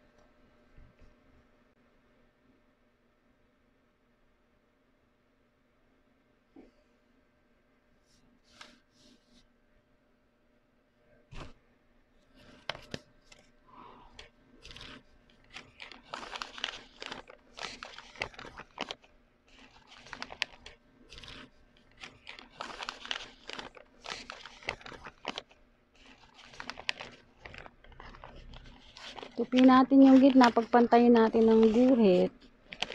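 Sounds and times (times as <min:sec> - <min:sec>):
paper rustling and crinkling: 0:12.2 - 0:32.9.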